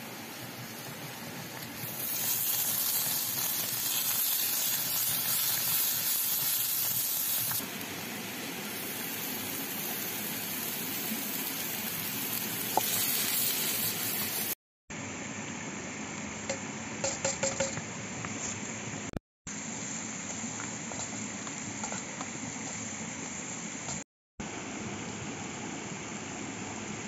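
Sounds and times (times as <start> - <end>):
onion sizzling in hot oil: 0.0 - 14.6.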